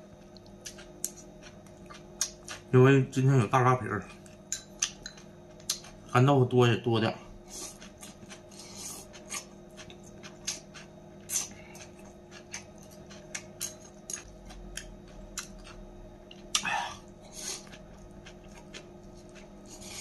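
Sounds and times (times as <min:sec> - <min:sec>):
faint steady hum: 0:00.0 - 0:20.0
man slurping and chewing: 0:07.5 - 0:10.6.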